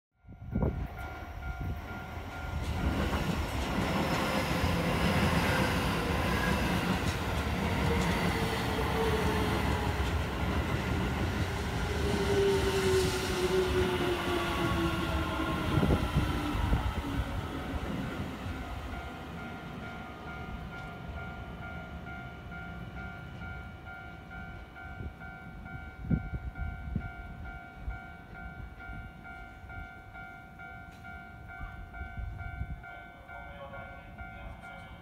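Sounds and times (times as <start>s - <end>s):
train wheels rumbling on rails: 0.4s - 35.0s
train clacks: 0.6s - 27.0s.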